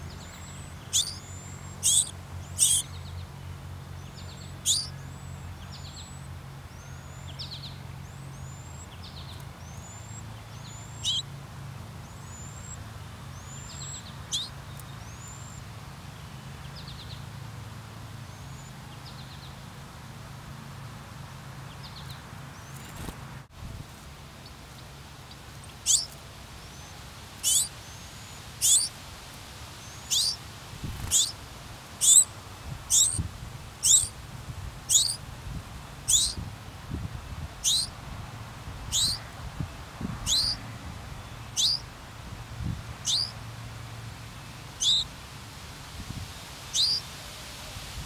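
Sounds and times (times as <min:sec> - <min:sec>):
sparrow calling: 0:00.0 - 0:03.3, 0:04.0 - 0:11.4, 0:12.0 - 0:15.7, 0:25.3 - 0:29.0, 0:29.8 - 0:31.4, 0:32.0 - 0:32.3, 0:32.9 - 0:34.2, 0:34.9 - 0:35.2, 0:36.0 - 0:36.5, 0:37.6 - 0:38.0, 0:38.9 - 0:39.2, 0:40.2 - 0:40.6, 0:41.3 - 0:41.9, 0:43.0 - 0:43.4, 0:44.8 - 0:45.1, 0:46.7 - 0:47.0.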